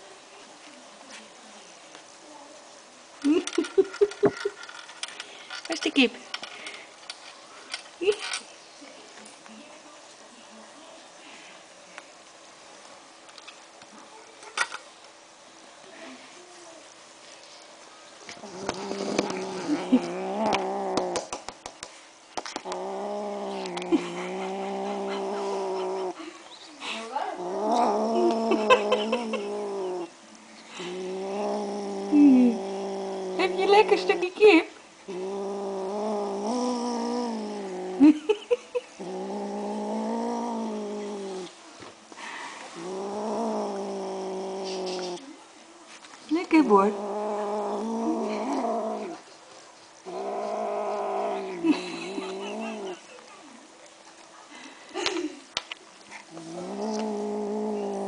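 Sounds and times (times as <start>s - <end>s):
kitten growling: 18.3s - 21.5s, 22.4s - 34.4s, 35.0s - 41.6s, 42.2s - 45.4s, 46.4s - 49.3s, 50.0s - 53.1s, 56.1s - 58.0s.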